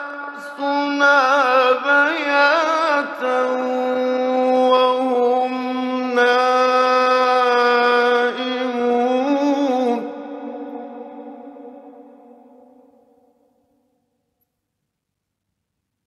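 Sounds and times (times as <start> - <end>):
man reciting melodically: 0.0 - 11.5.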